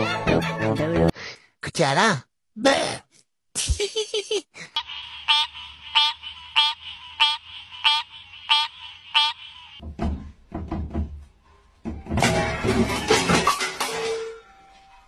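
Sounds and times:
tree frog croaking: 5.3s - 9.8s.

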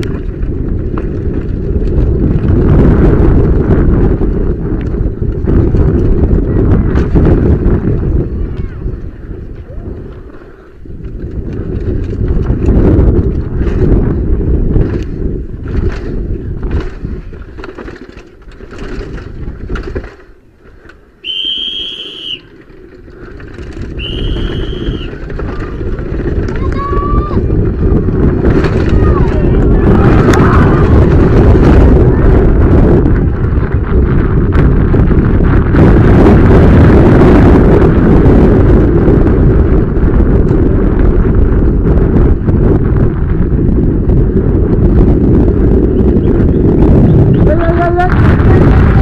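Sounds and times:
mountain bike rumble and rattle: 0.0s - 49.0s
wind buffeting microphone: 0.0s - 49.0s
high whistle-like tone: 21.2s - 22.5s, 24.0s - 25.1s.

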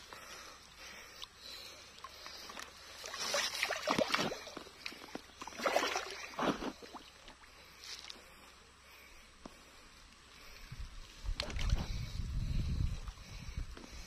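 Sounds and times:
fish thrashing and splashing: 2.0s - 7.4s.

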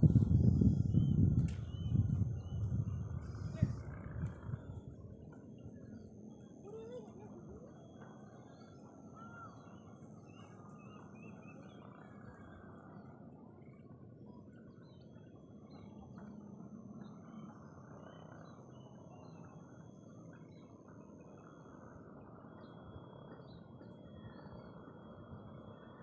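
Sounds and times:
distant birds chirping: 0.0s - 25.9s
low background hum: 0.0s - 26.0s.

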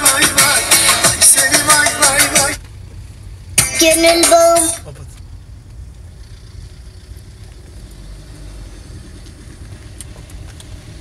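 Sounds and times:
car engine and tyres rumbling: 0.0s - 11.0s.

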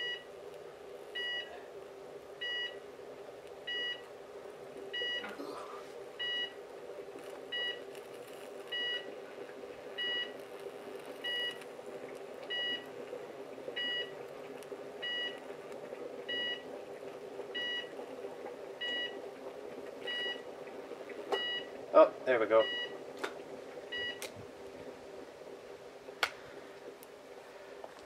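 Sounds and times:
electric arc buzzing: 7.1s - 13.0s.

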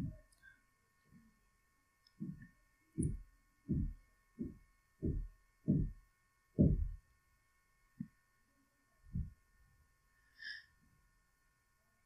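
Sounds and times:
dull low thumps: 0.0s - 0.3s, 2.2s - 6.0s, 6.6s - 7.0s, 9.1s - 9.4s.

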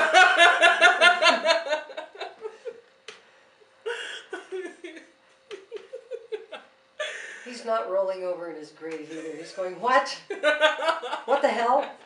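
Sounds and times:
women laughing: 0.0s - 2.8s, 3.9s - 7.6s, 10.2s - 12.0s.

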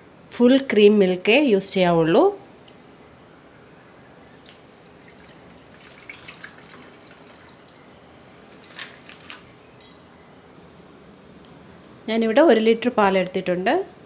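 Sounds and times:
milk pouring and dripping: 4.3s - 9.4s.

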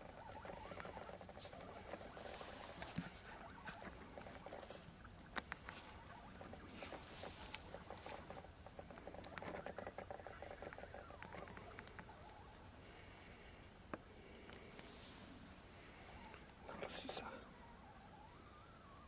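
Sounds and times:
bison chewing grass: 0.0s - 11.9s.

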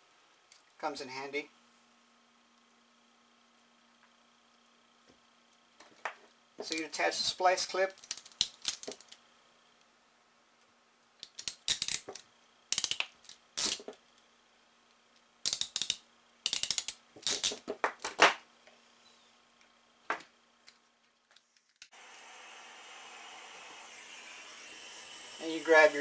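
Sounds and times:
metal pliers clicking: 15.5s - 17.5s.

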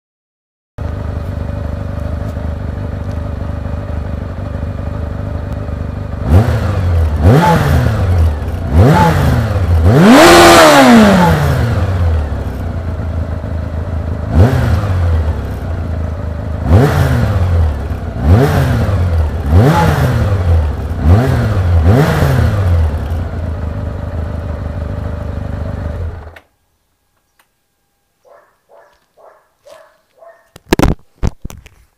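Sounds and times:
motorcycle engine idling: 0.8s - 8.8s, 11.6s - 19.6s, 20.2s - 21.1s, 22.7s - 26.4s
motorcycle engine revving: 0.8s - 26.4s.

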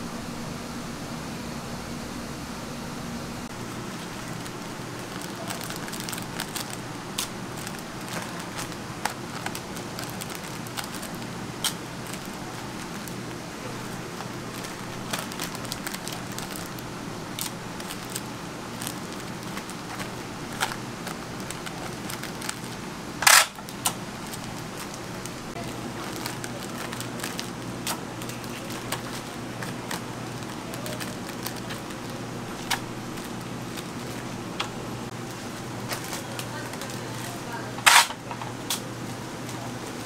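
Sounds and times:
steady electrical hum: 0.0s - 40.0s
plastic bags crinkling: 3.5s - 38.8s.

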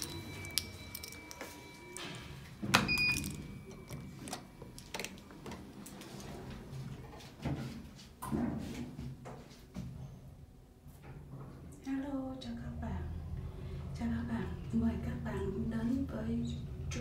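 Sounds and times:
elevator button beep: 0.0s - 4.4s.

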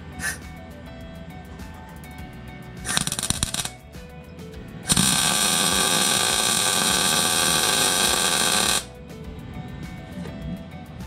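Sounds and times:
welding arc buzzing: 2.8s - 3.9s, 4.8s - 8.9s.

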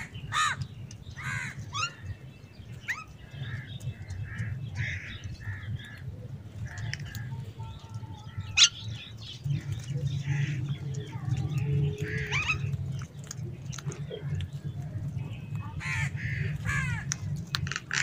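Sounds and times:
crows cawing: 0.0s - 1.9s, 3.4s - 7.3s, 15.8s - 17.2s.

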